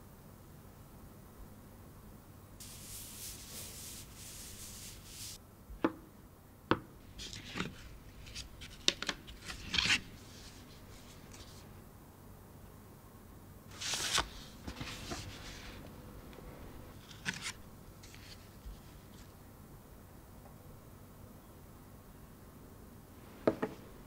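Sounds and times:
cardboard rustles and scrapes: 0:02.6 - 0:05.4, 0:13.7 - 0:15.8
soft rubbing hiss: 0:02.6 - 0:05.4, 0:07.0 - 0:11.9, 0:13.7 - 0:19.6.

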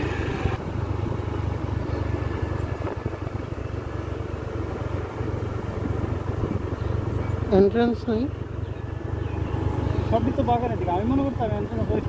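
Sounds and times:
motorcycle engine rumble: 0:00.0 - 0:12.0
wind noise on microphone: 0:05.6 - 0:06.9.

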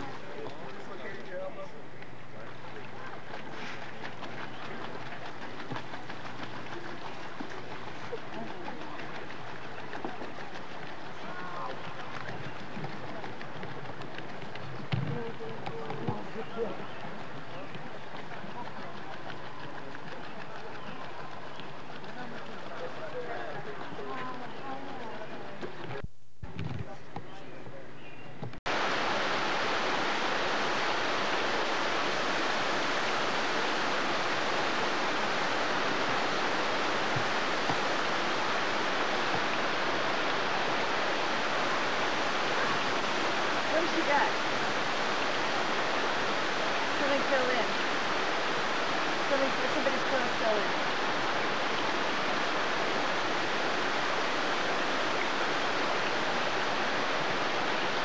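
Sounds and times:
waterfall rushing over rocks: 0:28.7 - 0:58.0.

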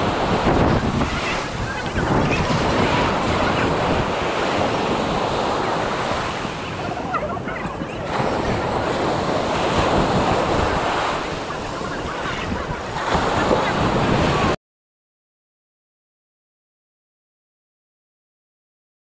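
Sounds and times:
surf washing on sandy beach: 0:00.0 - 0:14.6
wind buffeting microphone: 0:00.0 - 0:14.6.

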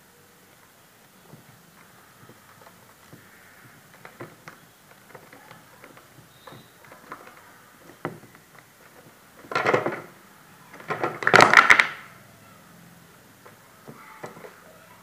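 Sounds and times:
plastic jar and lid clattering: 0:02.2 - 0:10.2, 0:10.8 - 0:12.0.

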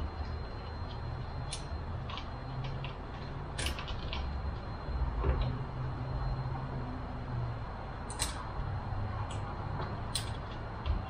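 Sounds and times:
steady low hum: 0:00.0 - 0:11.0
metal parts clicking: 0:08.1 - 0:08.4, 0:10.1 - 0:10.5.

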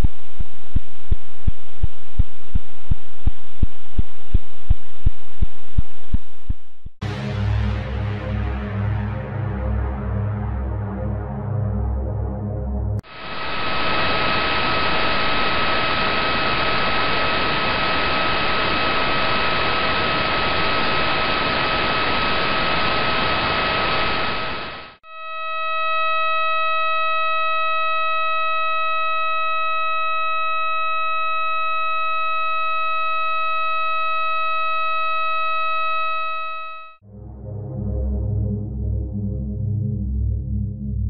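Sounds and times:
loud hiss with faint tone: 0:13.1 - 0:25.0
high-pitched buzzing tone: 0:13.1 - 0:37.0.

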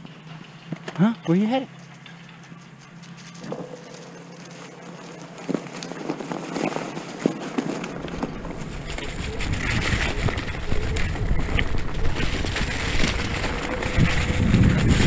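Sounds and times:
board rolling over dry leaves: 0:02.9 - 0:15.0
wind rumbling on microphone: 0:04.7 - 0:15.0.

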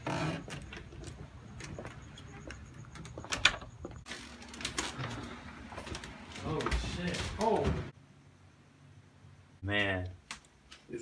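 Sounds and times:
quiet footsteps: 0:00.0 - 0:07.9.

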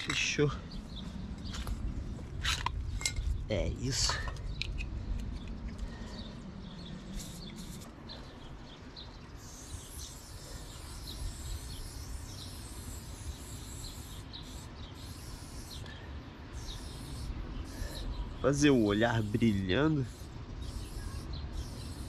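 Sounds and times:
low outdoor rumble: 0:00.0 - 0:09.8
spray paint can hissing: 0:07.2 - 0:07.9, 0:09.4 - 0:15.8, 0:16.5 - 0:18.0, 0:18.8 - 0:22.0.

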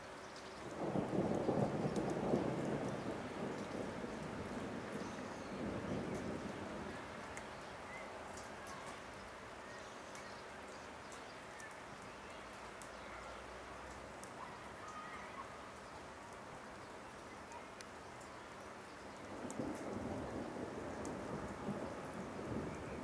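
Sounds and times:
faint ticks: 0:11.0 - 0:13.0, 0:17.5 - 0:18.4, 0:19.2 - 0:20.0.

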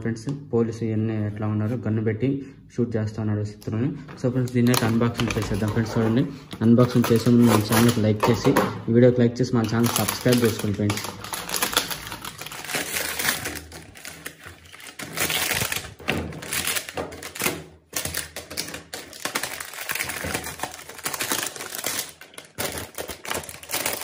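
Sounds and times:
cardboard and plastic bag tearing: 0:04.6 - 0:08.3, 0:09.6 - 0:24.0.

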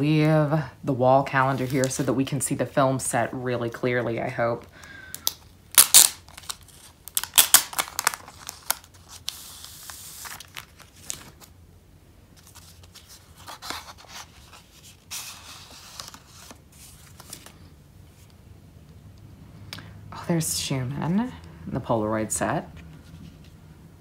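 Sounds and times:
plastic sleeve crinkling: 0:05.2 - 0:11.5, 0:12.4 - 0:18.3
paper envelope rustling: 0:05.8 - 0:11.6, 0:12.4 - 0:18.4.

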